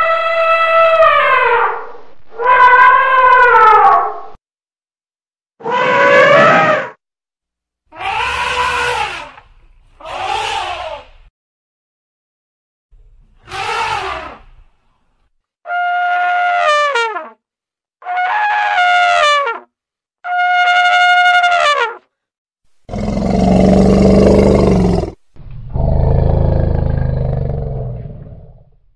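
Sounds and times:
elephant trumpeting: 0:05.6 - 0:06.9, 0:07.9 - 0:09.4, 0:10.0 - 0:11.1, 0:13.4 - 0:14.5
elephant roaring: 0:22.9 - 0:28.8.

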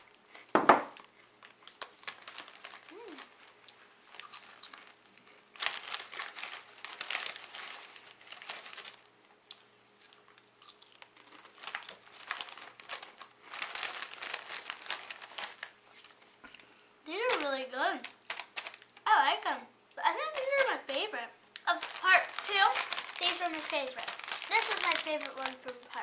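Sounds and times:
chips being chewed: 0:00.0 - 0:16.7, 0:18.1 - 0:19.0, 0:21.5 - 0:26.0
foil bag crinkling: 0:00.0 - 0:19.1, 0:20.0 - 0:26.0.

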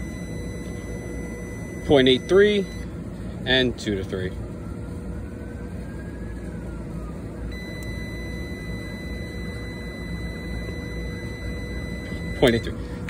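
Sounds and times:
high continuity beep: 0:00.0 - 0:02.9, 0:07.5 - 0:12.8
low background rumble: 0:00.0 - 0:13.0.

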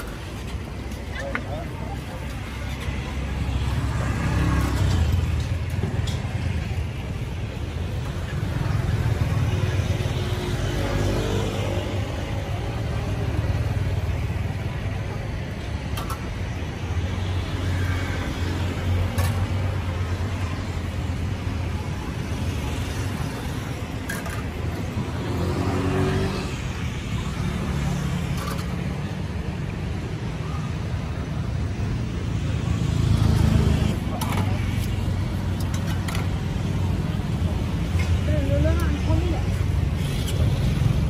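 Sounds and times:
faint voices: 0:00.0 - 0:17.2
traffic rumble: 0:00.0 - 0:41.0.

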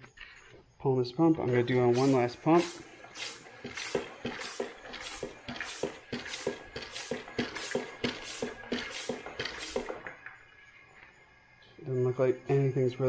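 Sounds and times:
hand pump hissing and knocking: 0:01.6 - 0:10.1.

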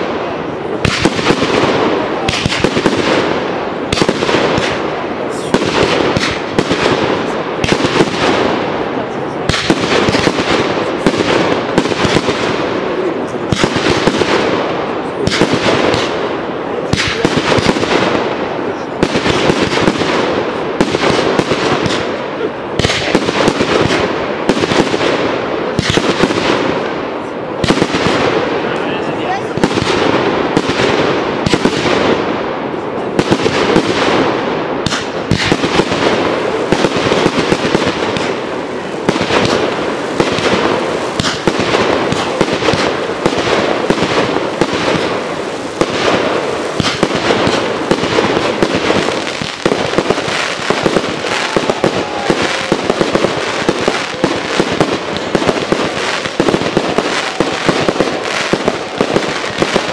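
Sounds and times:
fireworks bangs and crackling: 0:00.0 - 0:59.9.

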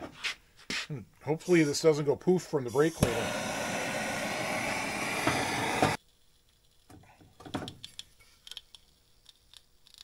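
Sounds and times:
gas torch hissing: 0:02.6 - 0:06.0.

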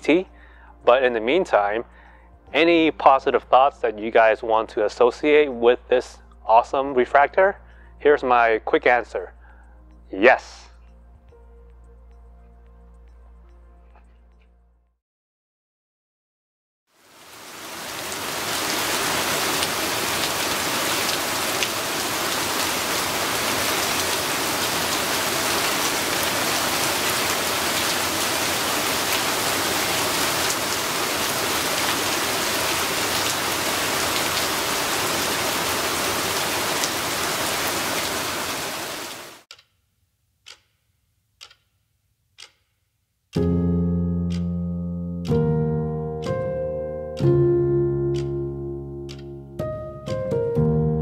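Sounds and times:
rain falling on wet street: 0:17.0 - 0:39.4
faint ticks: 0:40.4 - 0:40.8, 0:41.4 - 0:41.8, 0:49.1 - 0:49.3.

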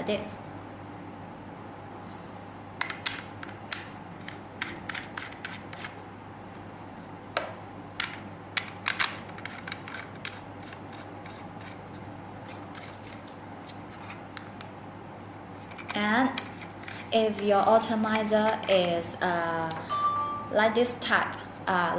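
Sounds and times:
low room hum: 0:00.0 - 0:21.9
small parts clicking and scraping: 0:08.0 - 0:13.2.

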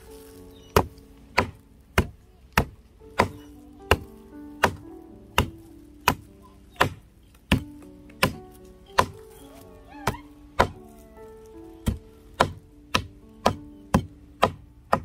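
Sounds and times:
soft background music: 0:00.0 - 0:15.0
hard strikes on food by hand: 0:11.8 - 0:15.0.

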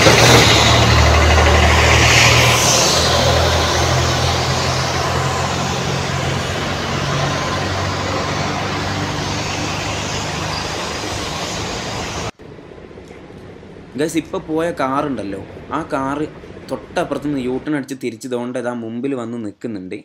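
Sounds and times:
car engine running: 0:00.0 - 0:14.0
street traffic noise: 0:00.0 - 0:17.7.

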